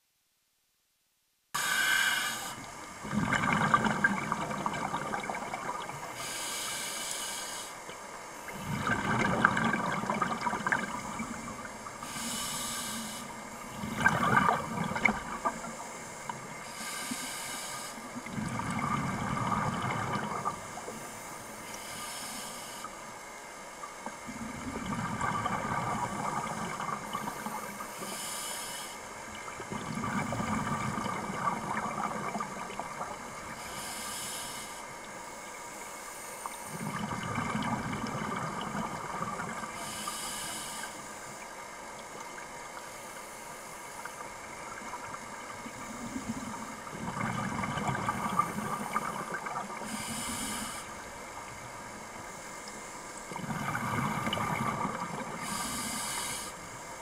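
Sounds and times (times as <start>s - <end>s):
regulator hiss on inhale: 1.5s - 3.2s, 4.4s - 9.0s, 10.1s - 14.1s, 15.1s - 31.3s, 33.4s - 38.0s, 39.4s - 41.9s, 42.8s - 46.9s, 48.0s - 57.0s
bubbling on exhale: 1.6s - 6.2s, 8.5s - 12.8s, 13.7s - 15.8s, 18.2s - 20.8s, 24.3s - 27.9s, 29.5s - 33.5s, 36.7s - 40.0s, 45.6s - 50.8s, 53.4s - 56.5s.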